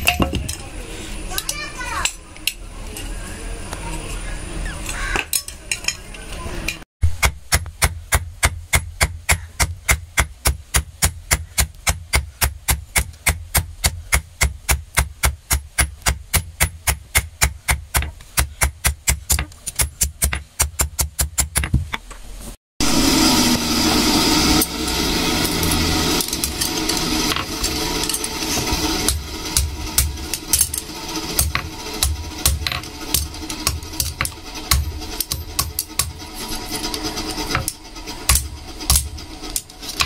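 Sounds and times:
loud steady noise: 0:22.8 - 0:40.0.

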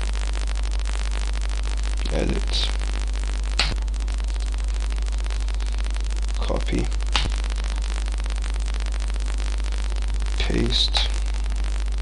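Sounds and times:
mains hum and static buzz: 0:00.0 - 0:12.0
short sharp click: 0:07.1 - 0:07.3.

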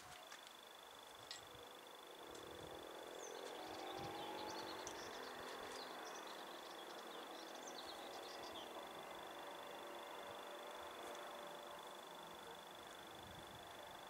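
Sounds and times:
faint outdoor background: 0:00.0 - 0:14.0
small birds chirping: 0:02.2 - 0:13.1.

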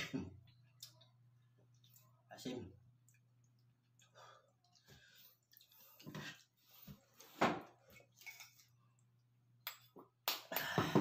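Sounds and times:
dishes and utensils clinking: 0:07.9 - 0:08.7.

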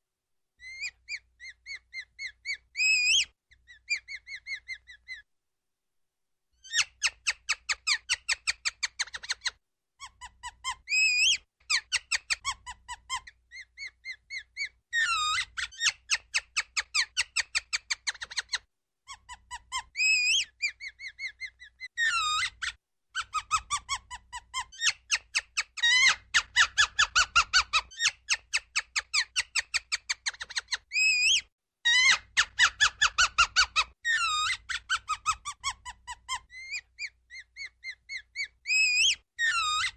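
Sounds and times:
ground squirrel chirping: 0:00.6 - 0:05.2, 0:25.8 - 0:39.9
ground squirrel squealing: 0:00.6 - 0:05.2, 0:06.6 - 0:39.9.

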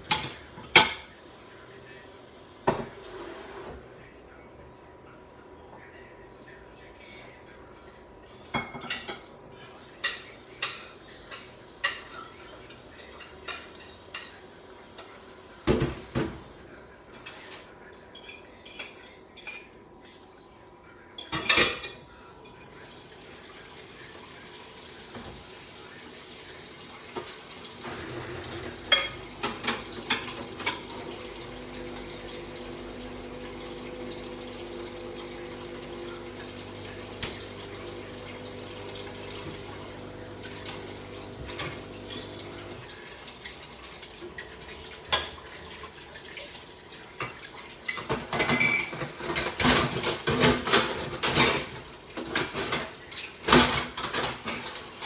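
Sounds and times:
dishes and cutlery clattering: 0:00.0 - 0:01.2, 0:08.3 - 0:16.5, 0:17.1 - 0:19.8, 0:21.2 - 0:22.8, 0:27.1 - 0:55.0.

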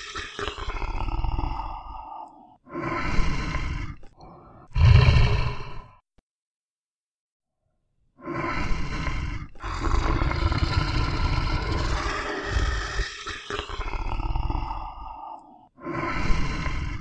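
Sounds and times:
bear roaring: 0:04.7 - 0:06.0, 0:08.4 - 0:17.0.

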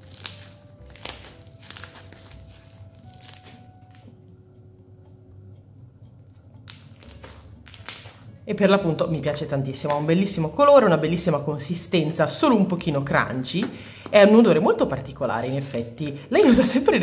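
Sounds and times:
slime squished with crackles: 0:00.0 - 0:04.1, 0:06.6 - 0:08.3.

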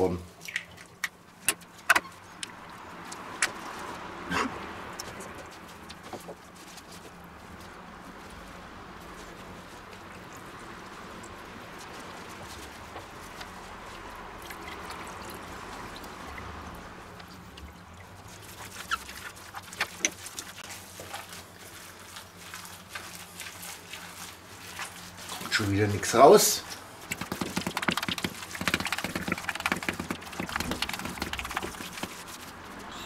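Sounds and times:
wet clicks of hands in mince: 0:00.4 - 0:03.8
liquid dribbling into a jug: 0:14.4 - 0:20.6, 0:27.0 - 0:32.2.

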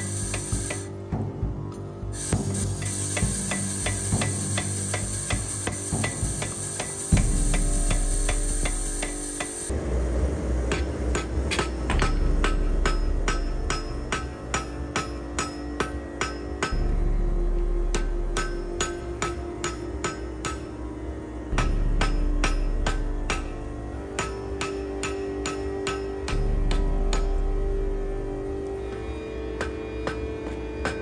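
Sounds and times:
hammer striking steel on anvil: 0:00.0 - 0:00.9, 0:02.2 - 0:09.7, 0:10.6 - 0:16.9, 0:17.9 - 0:20.8, 0:21.5 - 0:27.5, 0:29.6 - 0:31.0
power hammer pounding steel: 0:00.0 - 0:00.9, 0:02.2 - 0:16.9, 0:17.9 - 0:20.8, 0:21.5 - 0:27.5.

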